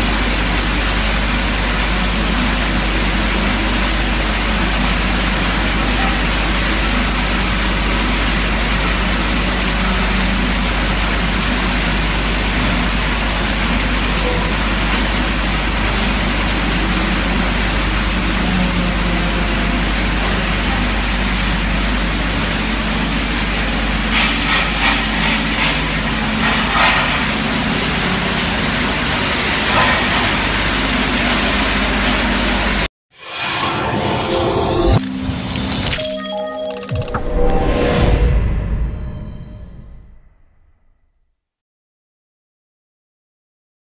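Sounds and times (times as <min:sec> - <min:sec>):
music: 0:33.9 - 0:38.6.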